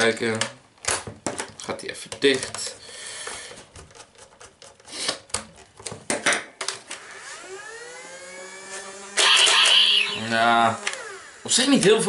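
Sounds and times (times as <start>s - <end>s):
plastic clicks and knocks: 0.3s - 2.6s
toy blaster power-up whine: 7.0s - 11.4s.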